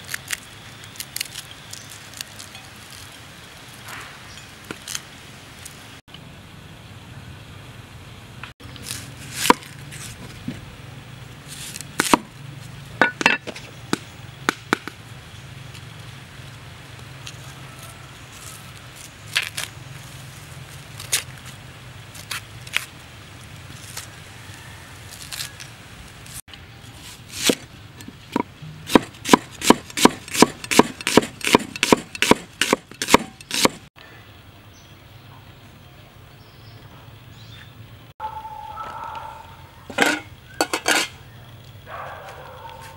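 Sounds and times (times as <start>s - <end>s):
cleaver chopping on wooden board: 12.0s - 12.3s, 28.3s - 33.8s.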